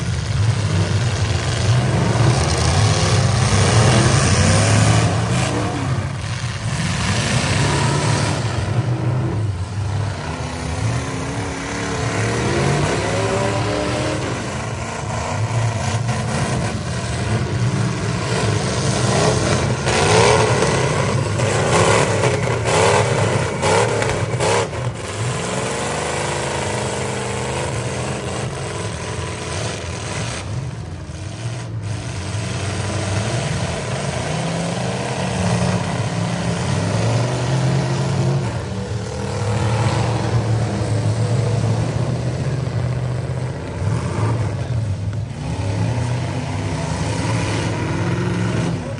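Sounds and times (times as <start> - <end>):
truck engines revving: 0.0 - 48.9.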